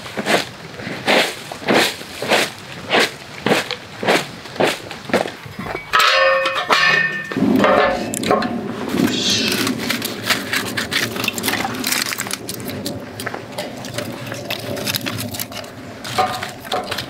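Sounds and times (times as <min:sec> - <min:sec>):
wood rustling and scraping: 0:00.0 - 0:17.0
firewood clanging on metal: 0:05.2 - 0:17.0
dry leaves crunching: 0:08.9 - 0:17.0.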